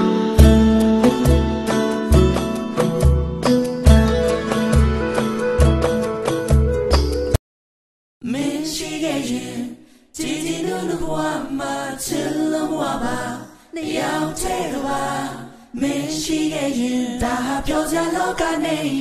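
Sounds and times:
group of voices singing: 0:08.2 - 0:19.0.

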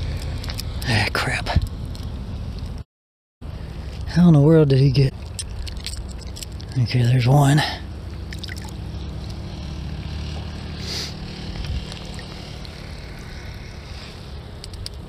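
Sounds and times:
flowing river: 0:08.2 - 0:08.9
wind rumble on microphone: 0:11.3 - 0:15.0.

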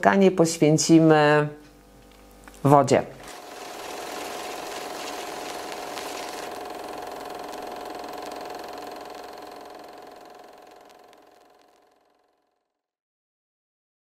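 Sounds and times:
film projector whirring: 0:01.6 - 0:12.6.

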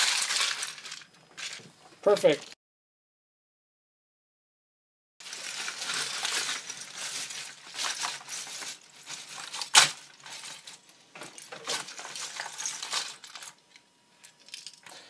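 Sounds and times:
plastic bricks clattering: 0:00.0 - 0:01.6, 0:05.3 - 0:13.6.

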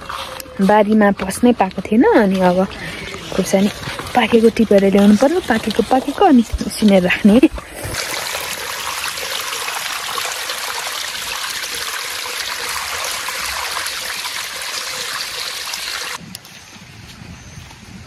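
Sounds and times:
water rushing down a gully: 0:02.8 - 0:16.2.

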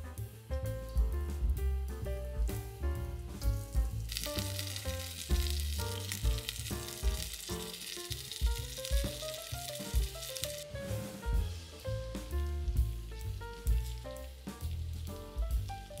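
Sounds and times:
background music with drum beat: 0:00.0 - 0:16.0
chicken sizzling in oil: 0:03.3 - 0:16.0.

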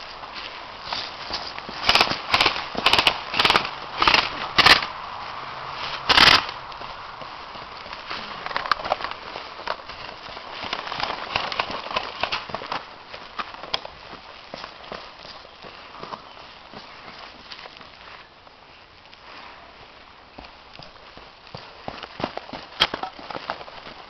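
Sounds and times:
outdoor background noise: 0:00.0 - 0:24.0
airsoft guns firing in bursts: 0:01.8 - 0:04.9, 0:06.1 - 0:06.5.

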